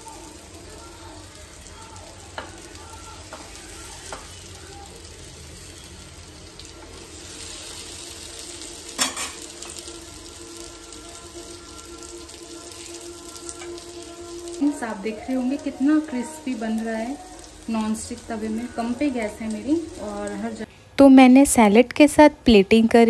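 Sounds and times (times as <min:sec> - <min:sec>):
kebabs sizzling in oil: 0:00.0 - 0:20.7.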